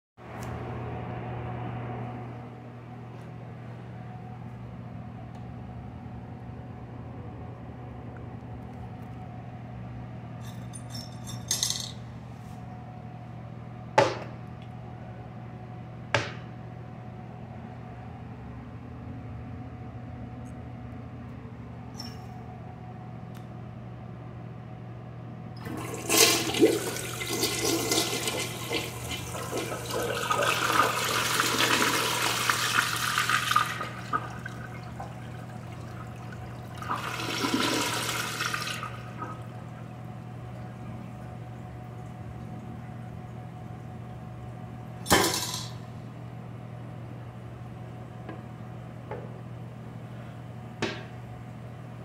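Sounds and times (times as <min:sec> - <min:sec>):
low room hum: 0:00.2 - 0:52.0
toilet seat knocking against tank: 0:14.0 - 0:14.3.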